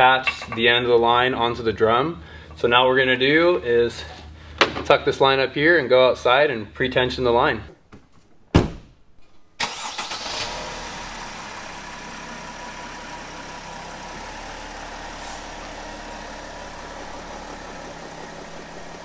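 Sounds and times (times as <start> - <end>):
van engine starting and idling: 9.6 - 19.0.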